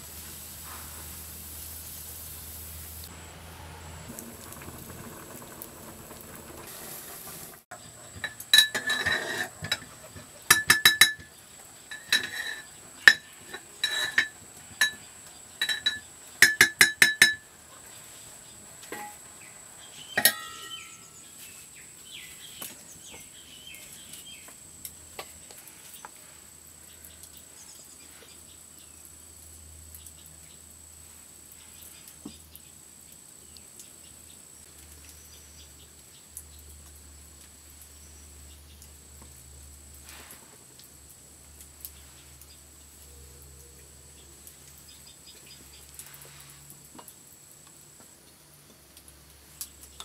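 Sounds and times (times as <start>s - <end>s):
pot boiling hiss: 0.0s - 50.0s
metal spoon clinking on pot: 8.2s - 9.9s, 10.5s - 17.5s, 20.2s - 21.0s.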